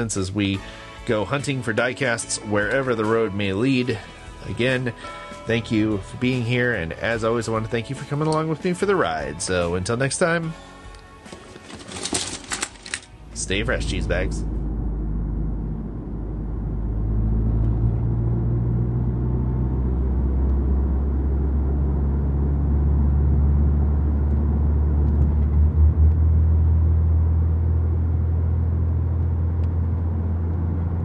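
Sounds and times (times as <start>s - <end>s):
car engine and tyres rumbling: 12.6s - 31.0s.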